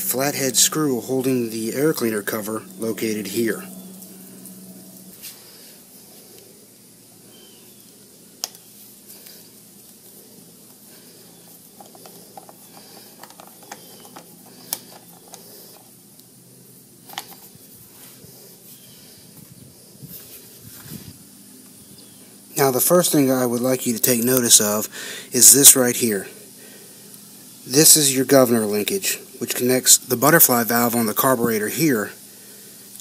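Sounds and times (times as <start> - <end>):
faint steady hiss: 0.0 - 33.0
screwdriver clicking and scraping: 11.8 - 15.9.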